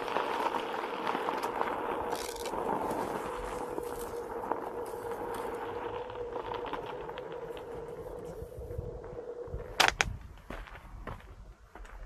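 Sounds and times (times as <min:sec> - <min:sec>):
tyre crunching on gravel: 0:00.0 - 0:08.2.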